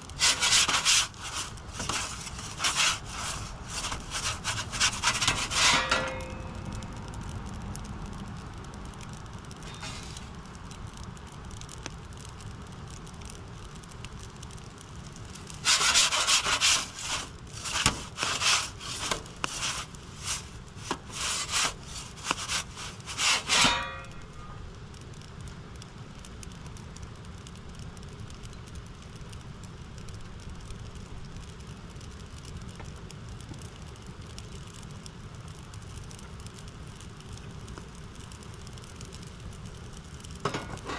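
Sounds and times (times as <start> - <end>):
metal peel scraping oven floor: 0.2 - 6.6, 9.7 - 10.2, 15.6 - 24.3, 40.5 - 40.9.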